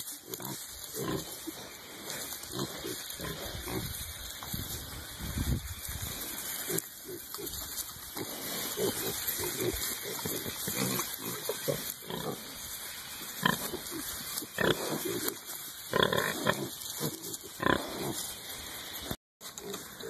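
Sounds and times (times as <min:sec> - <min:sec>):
piglets grunting: 0:06.0 - 0:12.7.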